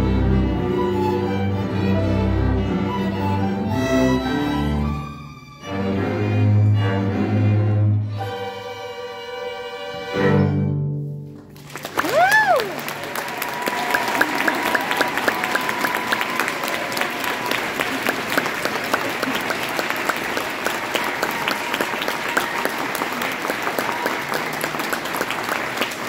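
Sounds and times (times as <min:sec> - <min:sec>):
audience applauding: 0:11.4 - 0:26.0.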